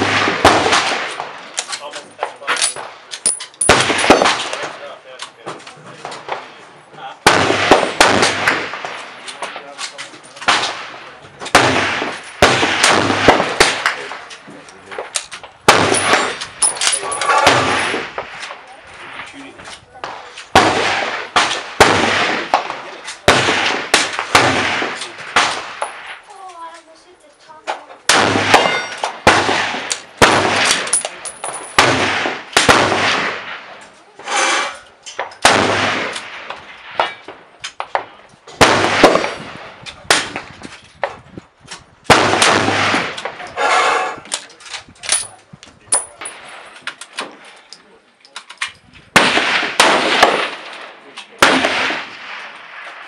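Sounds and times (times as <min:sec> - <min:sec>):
rifle shots with echo: 0:00.0 - 0:01.6, 0:02.6 - 0:05.0, 0:07.2 - 0:09.7, 0:10.4 - 0:19.3, 0:20.0 - 0:26.2, 0:28.0 - 0:33.8, 0:35.2 - 0:40.6, 0:42.0 - 0:43.8, 0:49.1 - 0:53.0.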